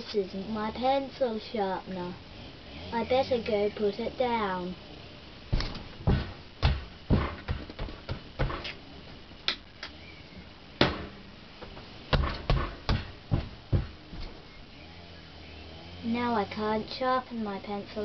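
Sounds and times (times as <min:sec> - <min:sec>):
footsteps thudding on floor: 0:05.5 - 0:08.8, 0:10.8 - 0:14.4
sharp knocks: 0:05.5 - 0:08.8, 0:10.8 - 0:14.4.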